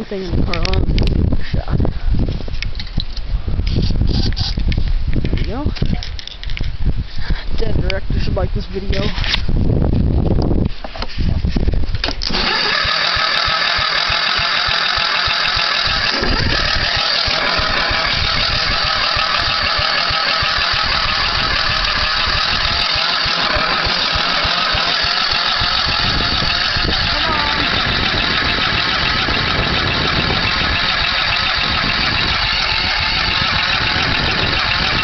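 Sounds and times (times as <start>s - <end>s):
small gasoline engine running: 12.2s - 35.0s.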